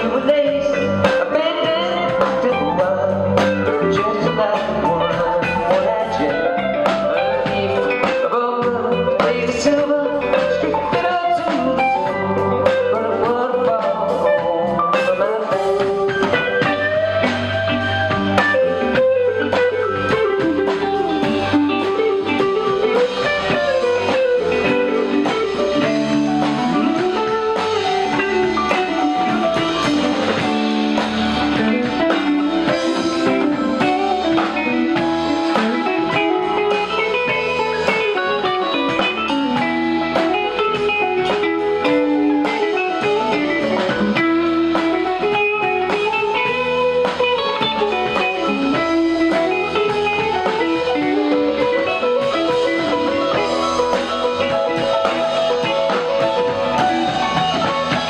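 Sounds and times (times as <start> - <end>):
bass guitar: 0.0 - 58.0
drums: 0.0 - 58.0
electric guitars: 0.0 - 58.0.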